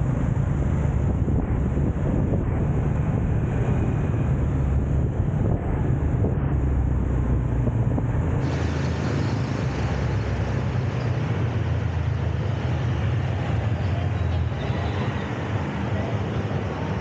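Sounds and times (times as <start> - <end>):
wind rumble on microphone: 0.0 - 13.8
city street traffic: 0.0 - 17.0
bright hiss: 8.4 - 10.8.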